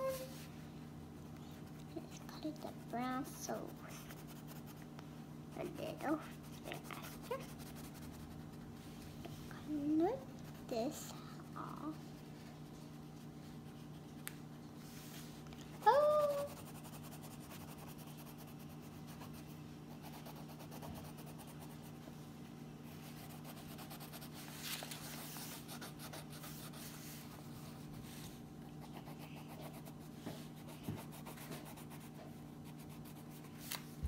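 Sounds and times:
steady low hum: 0:00.0 - 0:34.0
crayon scratching on paper: 0:01.5 - 0:04.8, 0:05.5 - 0:08.6, 0:15.9 - 0:22.0, 0:23.0 - 0:28.0, 0:28.8 - 0:33.5.

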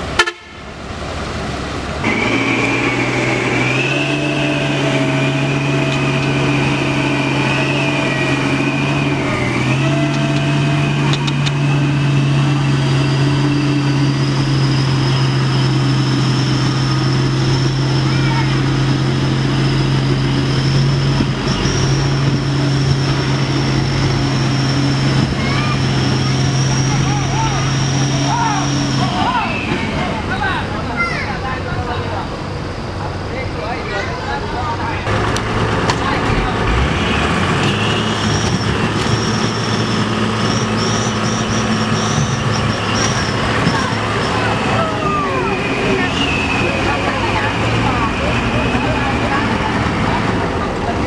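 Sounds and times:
diesel truck engine running: 0:00.0 - 0:51.0
thin high whistle: 0:37.7 - 0:47.2.

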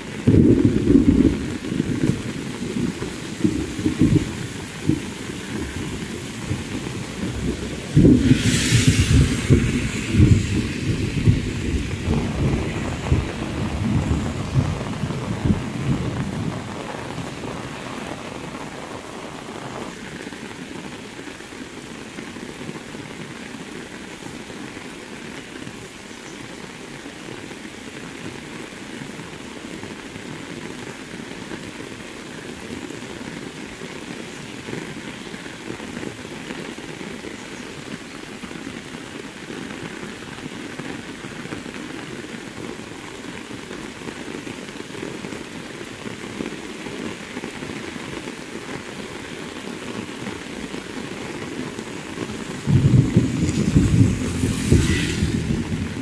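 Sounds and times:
heavy rain falling: 0:00.0 - 0:56.0
low thunder rumble: 0:00.2 - 0:19.8, 0:51.8 - 0:56.0.

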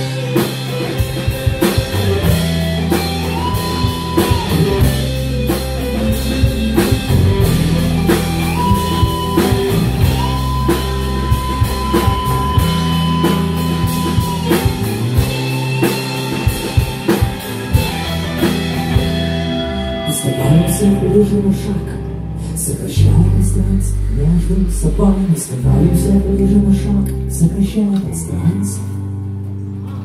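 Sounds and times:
drum kit steady beat: 0:00.0 - 0:20.4
live rock band playing: 0:00.0 - 0:30.0.

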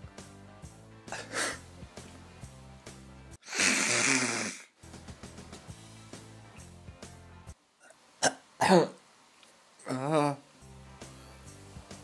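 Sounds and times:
music with a steady beat: 0:00.0 - 0:03.4, 0:04.8 - 0:07.6, 0:10.6 - 0:12.0
person snorting: 0:01.1 - 0:01.7, 0:03.4 - 0:04.8.

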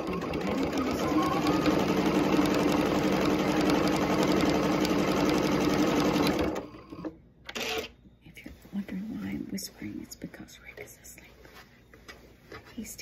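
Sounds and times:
sewing machine stitching: 0:00.0 - 0:07.9.

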